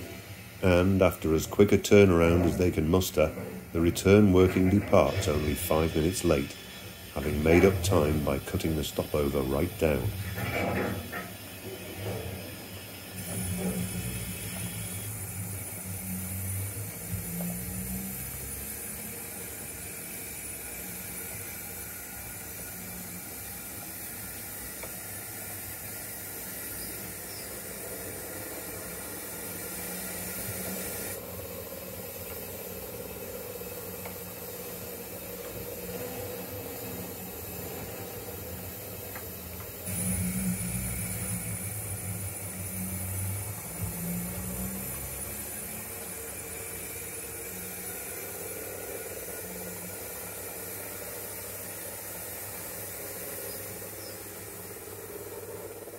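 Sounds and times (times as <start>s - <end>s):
steam hiss: 0.0s - 55.9s
wheels rumbling on track: 39.6s - 50.2s.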